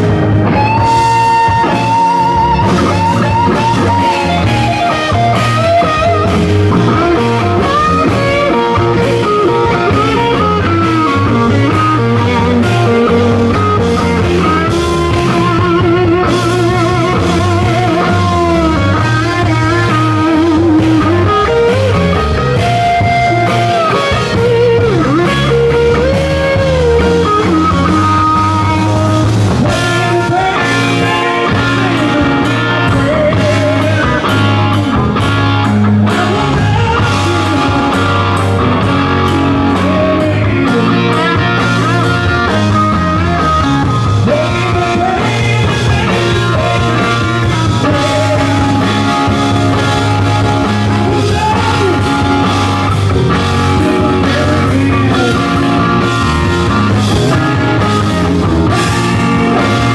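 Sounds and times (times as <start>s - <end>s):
bass guitar: 0.0s - 59.9s
drums: 0.0s - 59.9s
electric guitar solo: 0.0s - 59.9s.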